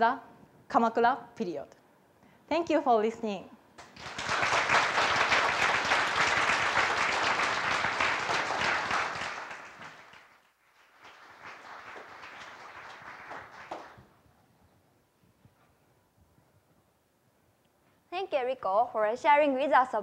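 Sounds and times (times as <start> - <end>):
audience applauding: 3.8 - 14.1.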